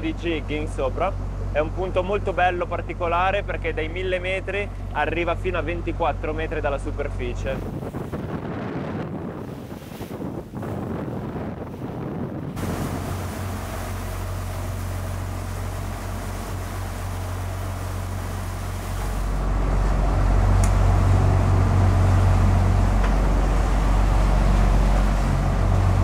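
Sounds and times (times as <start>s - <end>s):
boat engines humming: 0.0s - 26.0s
rush of wind and water: 6.7s - 26.0s.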